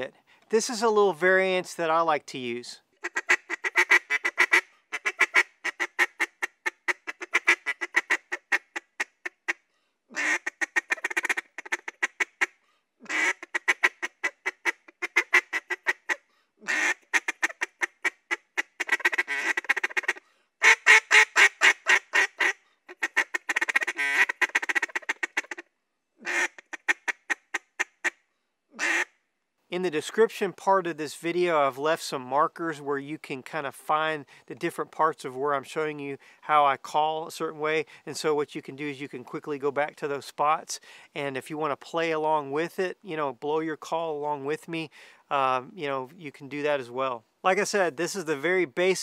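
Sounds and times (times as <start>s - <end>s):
duck call clucking notes: 3.0s - 28.2s, 28.8s - 29.1s.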